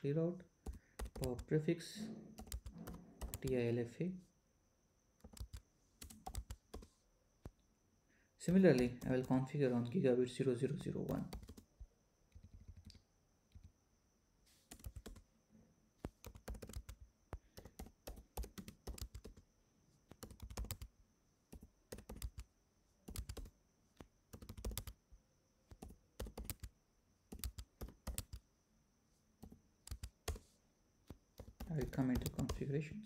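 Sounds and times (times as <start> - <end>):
computer keyboard typing: 0.6 - 1.5, 2.4 - 3.6, 5.2 - 6.9, 8.5 - 9.5, 10.7 - 11.7, 12.3 - 13.7, 14.7 - 15.2, 16.1 - 19.4, 20.1 - 20.9, 21.5 - 22.5, 23.1 - 23.5, 24.3 - 25.0, 25.7 - 26.7, 27.3 - 28.4, 29.4 - 30.4, 31.1 - 32.7.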